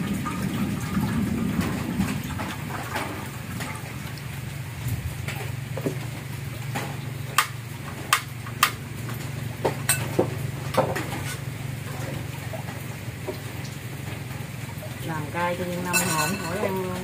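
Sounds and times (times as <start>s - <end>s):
metal spoon clinking against pan: 15.9s - 16.7s.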